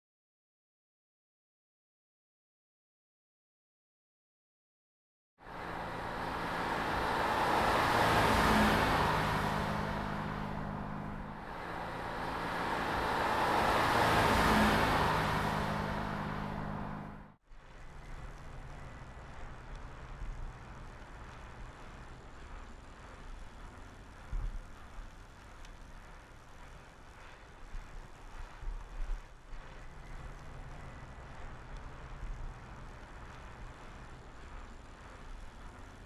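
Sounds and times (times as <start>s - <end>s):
outdoor background noise: 5.4s - 36.0s
car driving past at speed: 5.5s - 17.4s.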